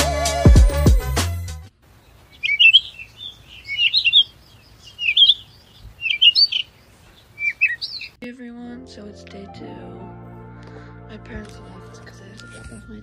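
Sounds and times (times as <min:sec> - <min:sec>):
music: 0:00.0 - 0:01.7, 0:08.2 - 0:13.0
bird chirping: 0:01.9 - 0:08.2.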